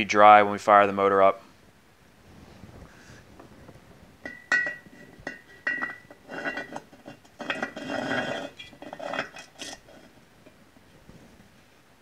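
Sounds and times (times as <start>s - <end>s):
metal clinking and scraping: 4.2s - 10.6s.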